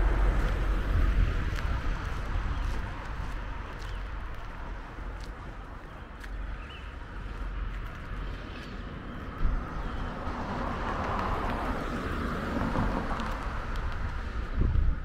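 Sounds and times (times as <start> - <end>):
vehicle passing by: 7.1 - 14.8.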